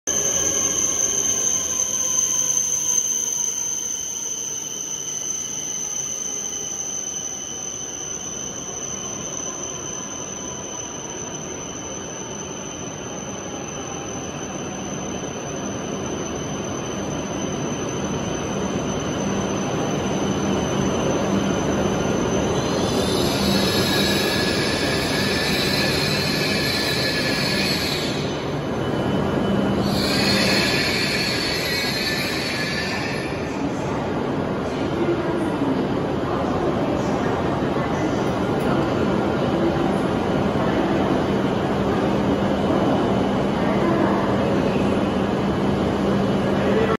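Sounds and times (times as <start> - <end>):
train running noise: 10.9 - 46.9
brake squeal: 19.1 - 33.5.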